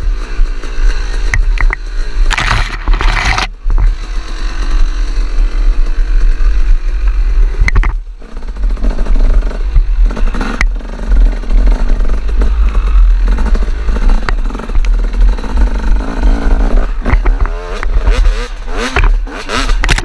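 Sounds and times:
dirt bike engine: 0:00.0 - 0:20.0
branches scraping against bike: 0:00.6 - 0:09.2.

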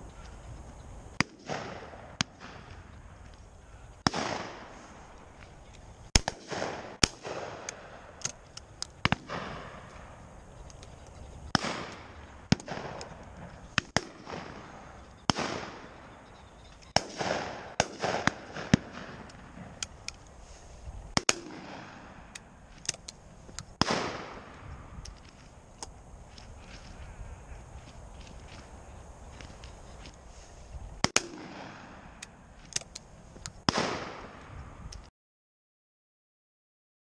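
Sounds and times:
shotgun shots echoing: 0:01.2 - 0:02.8, 0:04.0 - 0:04.9, 0:06.1 - 0:08.4, 0:09.0 - 0:10.2, 0:11.5 - 0:19.9, 0:21.1 - 0:23.0, 0:23.8 - 0:24.7, 0:31.0 - 0:32.3, 0:33.6 - 0:34.5.

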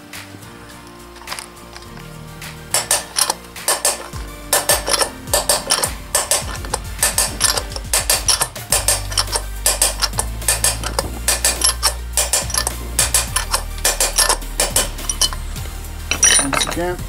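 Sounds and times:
metallic hammer blows: 0:00.8 - 0:17.0.

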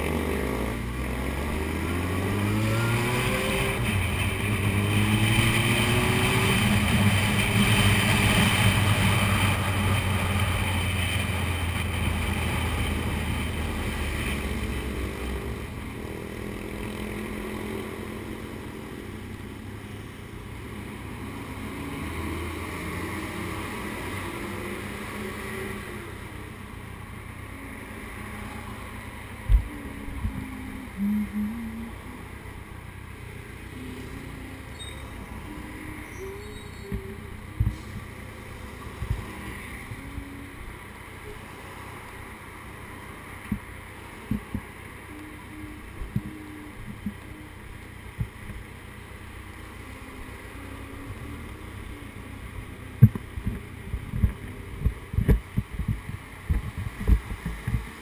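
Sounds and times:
motorcycle engine running: 0:00.0 - 0:19.8, 0:43.5 - 0:58.0.

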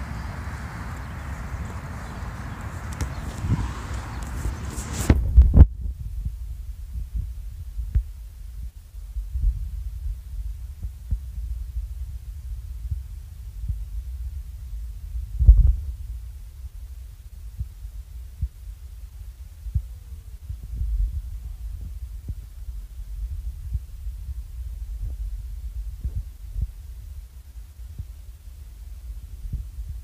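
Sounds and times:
wind on phone microphone: 0:00.0 - 0:30.0.

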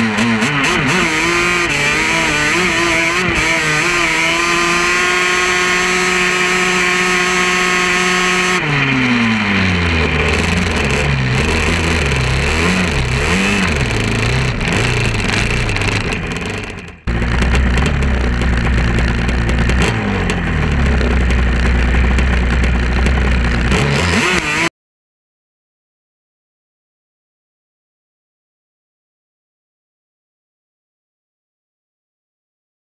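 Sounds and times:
off-road vehicle engine revving: 0:00.0 - 0:24.7.

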